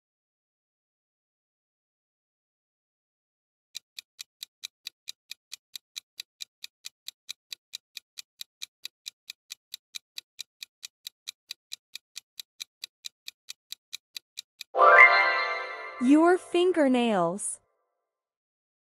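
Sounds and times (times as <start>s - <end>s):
quick clock ticking: 3.8s - 14.7s.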